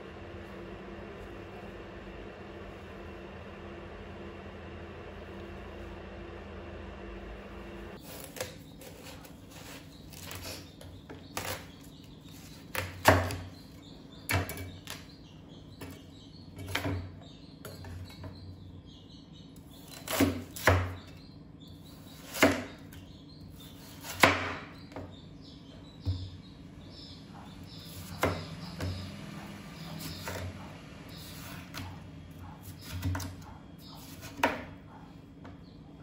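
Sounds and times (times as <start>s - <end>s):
knife chopping on cutting board: 34.0s - 34.7s.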